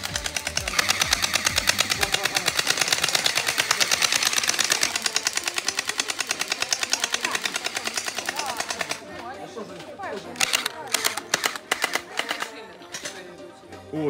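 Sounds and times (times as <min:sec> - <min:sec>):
rapid high-pitched clicking: 0:00.0 - 0:09.1, 0:10.4 - 0:12.5.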